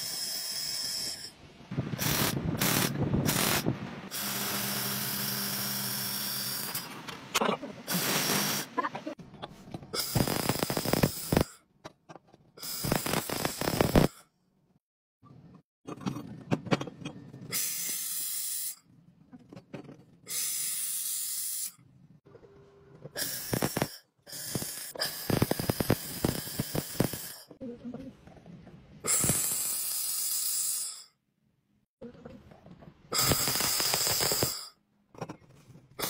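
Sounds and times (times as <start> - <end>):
laser welding hiss and crackle: 2.0 - 6.9, 10.0 - 11.5, 12.6 - 14.1, 23.2 - 27.5, 33.2 - 34.6.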